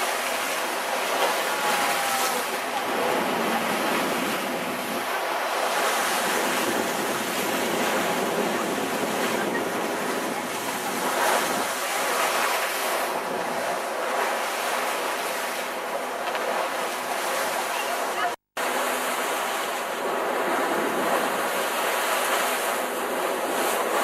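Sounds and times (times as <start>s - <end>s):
water rushing along a hull: 0.0s - 24.0s
wind on microphone: 0.1s - 13.8s.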